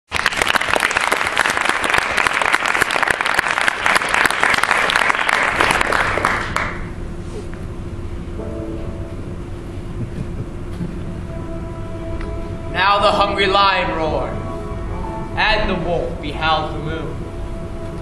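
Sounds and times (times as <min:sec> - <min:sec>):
audience applauding: 0:00.1 - 0:07.0.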